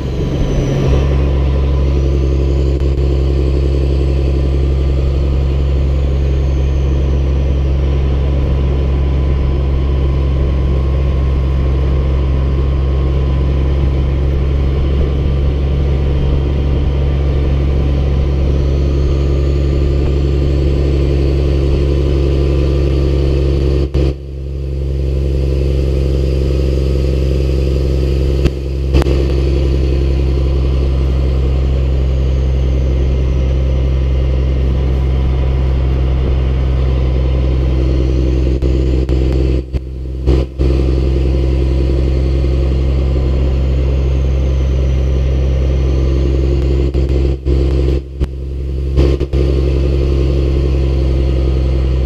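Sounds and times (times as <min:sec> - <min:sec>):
diesel truck engine droning: 0:00.0 - 0:52.0
road and wind noise: 0:00.0 - 0:52.0.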